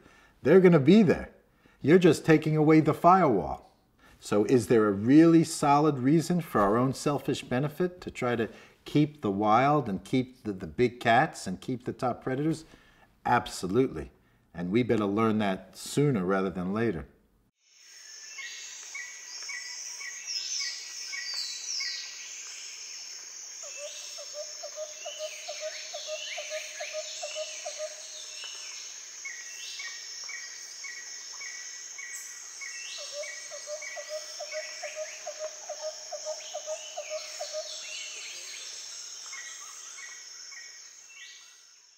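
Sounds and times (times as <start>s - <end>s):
high insect drone: 17.6s - 41.9s.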